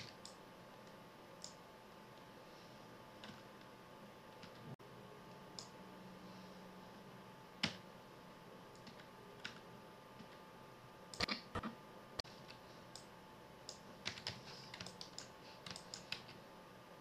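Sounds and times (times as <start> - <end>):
faint electrical hum: 0.0 - 17.0
keyboard and mouse clicks: 1.4 - 1.6, 11.1 - 13.1, 13.7 - 16.4.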